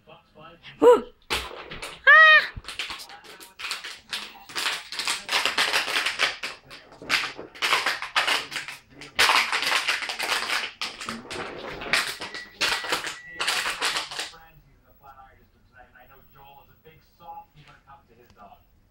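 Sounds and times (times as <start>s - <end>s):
plastic bottle crinkling: 1.2s - 14.4s.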